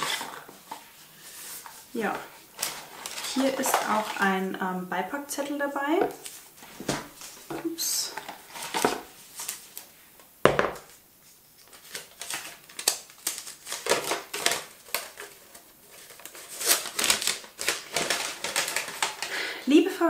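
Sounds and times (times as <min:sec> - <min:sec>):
sharp paper crackle: 0:00.0 - 0:04.2, 0:11.6 - 0:19.5
paper rustling and crinkling: 0:00.0 - 0:04.5, 0:06.1 - 0:09.9, 0:11.2 - 0:19.4.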